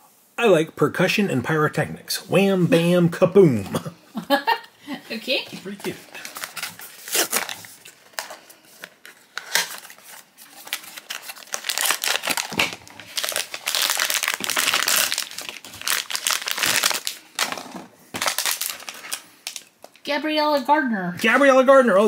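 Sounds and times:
foil bag tearing and crinkling: 0:06.1 - 0:08.3, 0:09.2 - 0:19.7.

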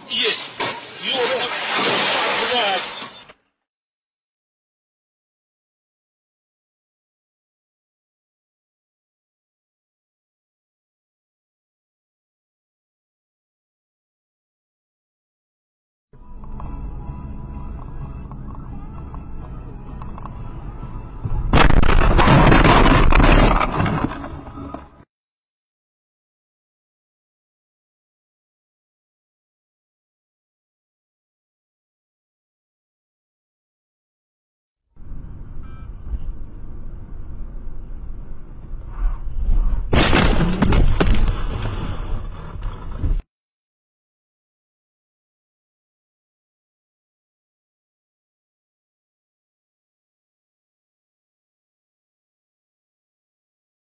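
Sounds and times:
car collision crash: 0:00.1 - 0:03.3, 0:21.5 - 0:24.9, 0:39.9 - 0:42.2
car engine and tyre noise: 0:16.3 - 0:21.5, 0:35.0 - 0:40.0, 0:40.6 - 0:43.2.

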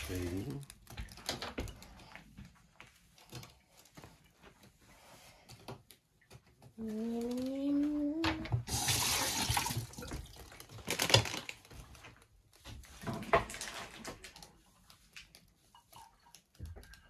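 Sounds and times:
tap water running into sink: 0:08.5 - 0:10.4.

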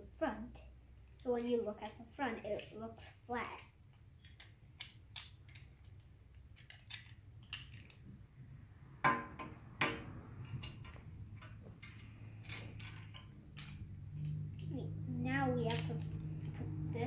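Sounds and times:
low steady hum: 0:00.0 - 0:17.0
plastic bricks clicking together: 0:03.9 - 0:08.0.

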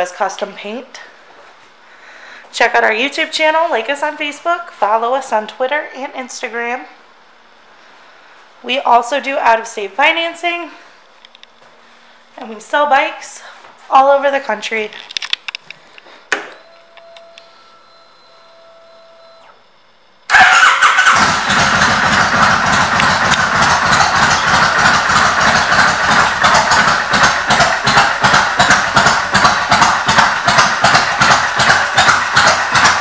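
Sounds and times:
faint electric whine: 0:00.4 - 0:20.3
motorcycle engine starting and idling: 0:20.3 - 0:33.0.

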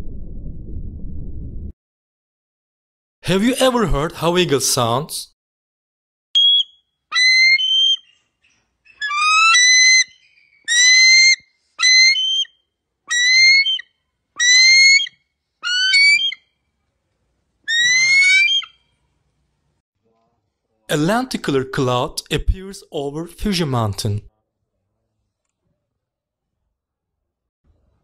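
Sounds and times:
eagle whistled calls: 0:06.4 - 0:16.4, 0:17.7 - 0:18.8.

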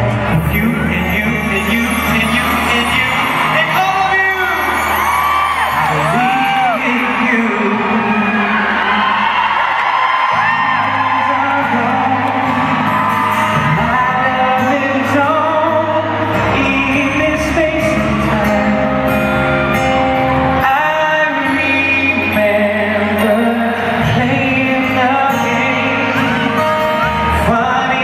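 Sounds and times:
acoustic guitar: 0:00.0 - 0:28.0
audience whooping: 0:01.5 - 0:14.5
pop group singing live: 0:04.6 - 0:19.3.

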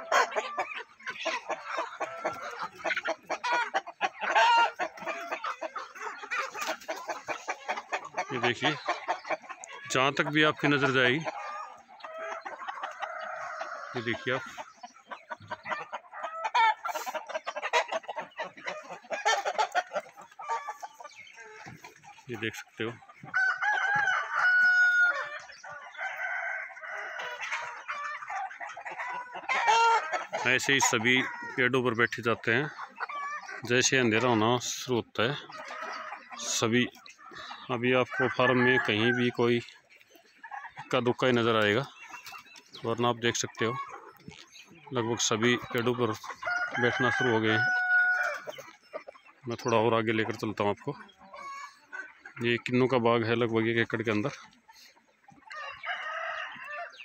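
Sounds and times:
chickens clucking: 0:00.0 - 0:57.0
drawn-out chicken call: 0:00.0 - 0:57.0.

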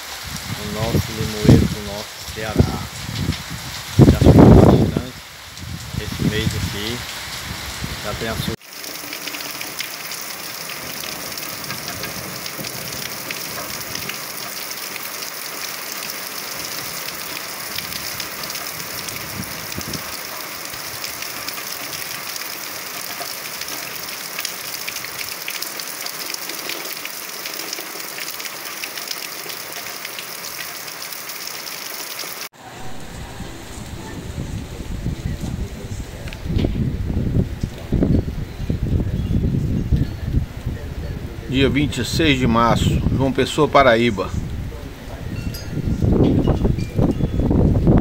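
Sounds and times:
rain on pavement: 0:00.0 - 0:38.2
wind rumble on microphone: 0:00.1 - 0:08.6, 0:17.7 - 0:20.2, 0:32.7 - 0:43.4, 0:44.2 - 0:48.0.

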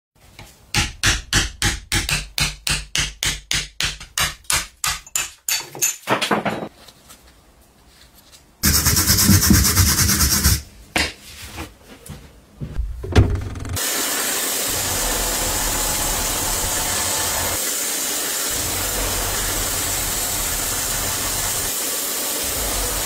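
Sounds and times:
loud steady rasping: 0:08.6 - 0:10.6, 0:14.4 - 0:23.0
tool scraping wood: 0:08.6 - 0:10.6.

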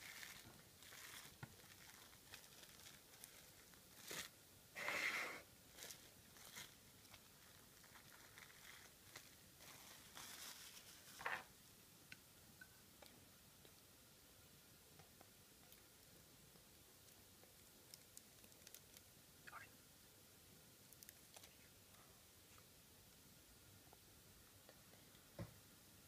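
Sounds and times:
cling film crinkling: 0:00.0 - 0:04.4, 0:05.7 - 0:11.5.

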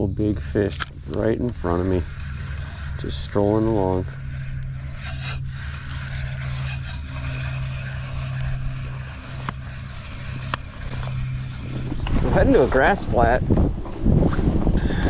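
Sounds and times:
outboard motor running: 0:00.0 - 0:15.0
sharp ticks: 0:00.1 - 0:12.1.

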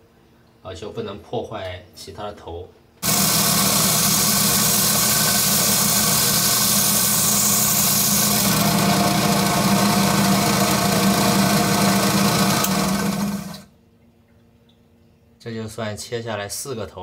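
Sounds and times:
electric saw grinding: 0:03.0 - 0:13.7.

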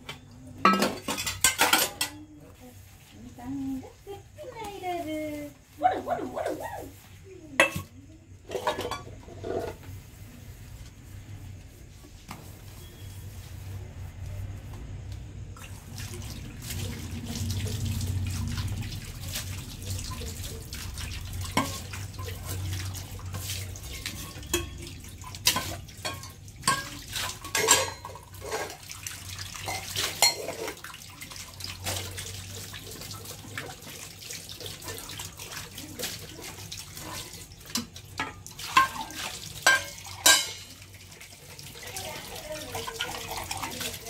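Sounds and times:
steel utensils clanking: 0:00.6 - 0:02.3, 0:08.5 - 0:09.8, 0:23.9 - 0:28.8, 0:29.6 - 0:30.8, 0:37.1 - 0:40.7
tap water running: 0:03.0 - 0:13.3, 0:15.4 - 0:44.0.

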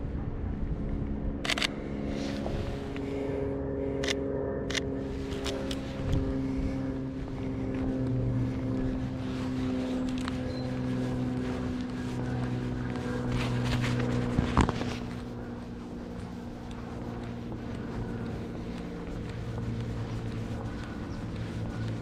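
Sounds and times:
motor hum: 0:00.0 - 0:22.0
sharp clicks: 0:01.4 - 0:01.8.

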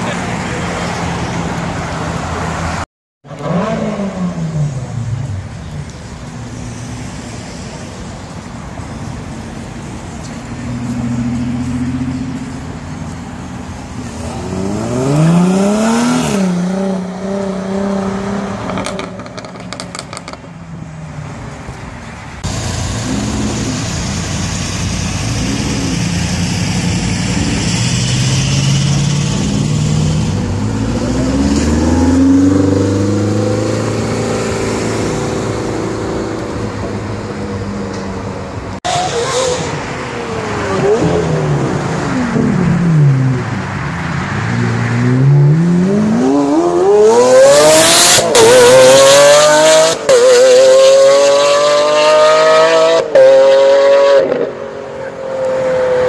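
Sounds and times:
sports car engines accelerating: 0:00.0 - 0:06.9, 0:07.8 - 0:20.5, 0:22.4 - 0:56.0.

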